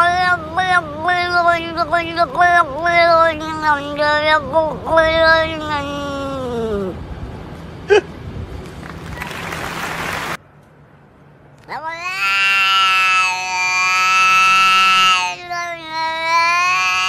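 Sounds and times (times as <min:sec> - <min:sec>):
rushing noise: 0:07.2 - 0:10.4
cat yowling: 0:11.7 - 0:17.0.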